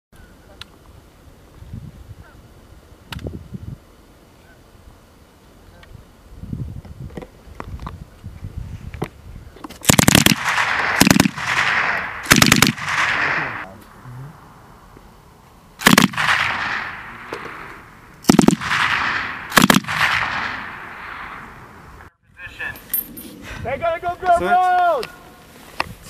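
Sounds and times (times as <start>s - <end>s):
machine gun bursts: 9.8s - 13.5s, 18.3s - 20.6s
gunshot echo rolling: 9.8s - 13.7s, 15.8s - 22.1s.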